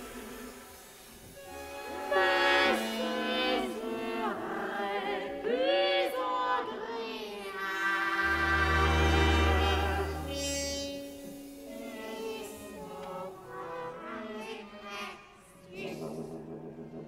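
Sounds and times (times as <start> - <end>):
countertenor singing: 1.5 - 16.2
low sustained string notes: 7.8 - 14.0
chamber ensemble: 8.0 - 13.8.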